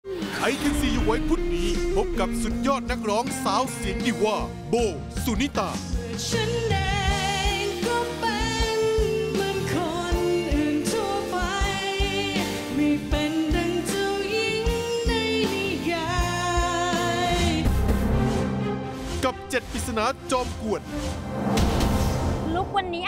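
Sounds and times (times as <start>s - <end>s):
band with bass and drums: 0.0s - 17.9s
woman singing with vibrato: 6.2s - 17.7s.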